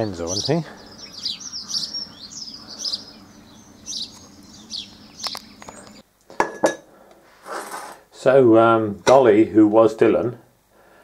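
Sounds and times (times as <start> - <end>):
small birds chirping: 0.0 - 6.1
low steady hum: 0.2 - 7.3
sharp clicks: 5.2 - 6.0.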